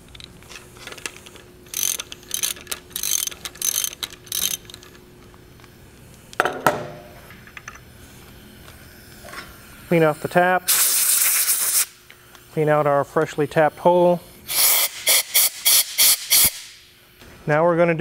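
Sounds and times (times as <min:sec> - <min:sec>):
hand ratchet clicking: 0:00.1 - 0:05.0.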